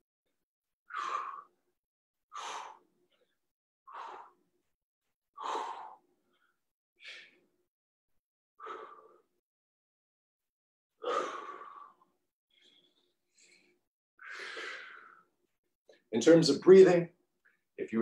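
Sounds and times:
person breathing hard: 0:00.9 - 0:01.7, 0:02.3 - 0:04.6, 0:05.4 - 0:07.5, 0:08.6 - 0:09.4, 0:11.0 - 0:15.4.

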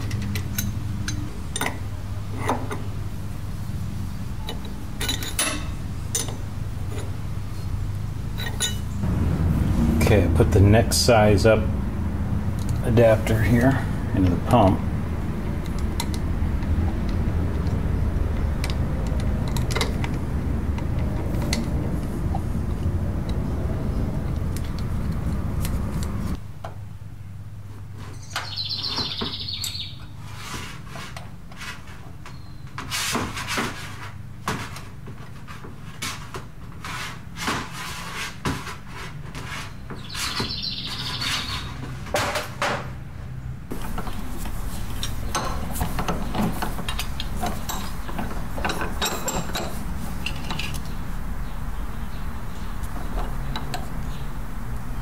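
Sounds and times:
steady hum: 0:00.0 - 0:26.6
bird chirping: 0:28.2 - 0:30.1, 0:40.0 - 0:41.8, 0:50.7 - 0:54.4.

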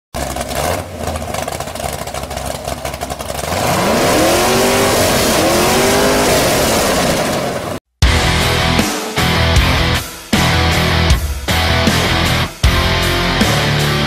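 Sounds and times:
car engine revving: 0:00.2 - 0:07.8.

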